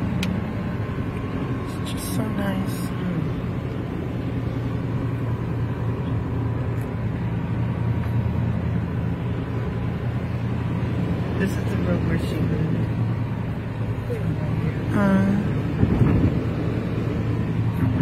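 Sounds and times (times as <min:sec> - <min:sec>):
car engine and tyres rumbling: 0:00.0 - 0:18.0.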